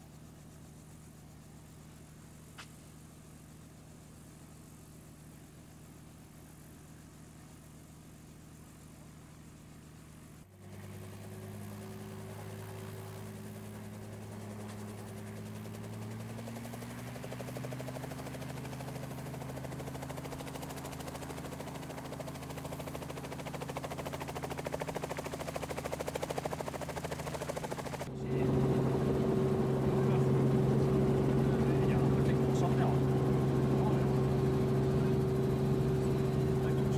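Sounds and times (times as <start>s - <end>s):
helicopter engine spooling up: 10.0s - 36.9s.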